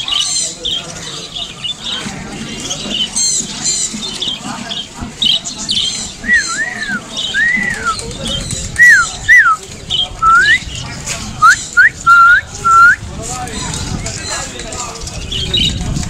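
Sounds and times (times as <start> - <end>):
whistled notes: 6.2 - 8.1, 8.8 - 9.6, 10.2 - 10.6, 11.4 - 13.0.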